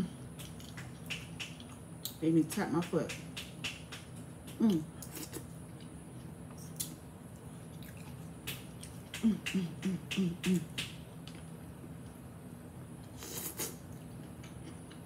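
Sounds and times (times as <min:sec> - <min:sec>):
wet chewing and lip smacks: 0:00.4 - 0:02.2, 0:03.4 - 0:09.2
person humming mm: 0:04.6 - 0:04.9, 0:09.2 - 0:10.7.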